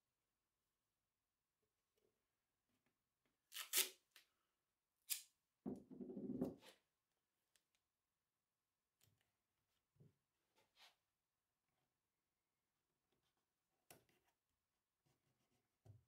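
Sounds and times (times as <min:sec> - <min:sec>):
tape ripping from roll: 0:03.5 - 0:04.0.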